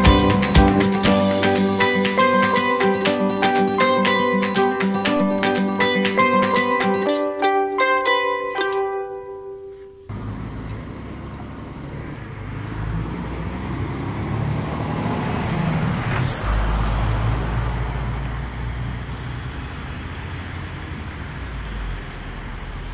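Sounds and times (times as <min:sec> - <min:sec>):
cars passing on road: 0:00.0 - 0:04.8, 0:10.1 - 0:22.9.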